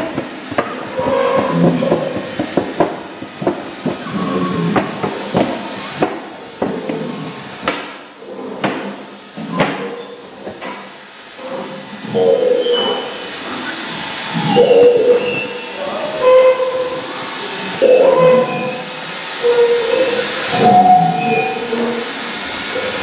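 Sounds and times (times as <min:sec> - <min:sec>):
sharp knocks and clatter: 0:00.0 - 0:08.0.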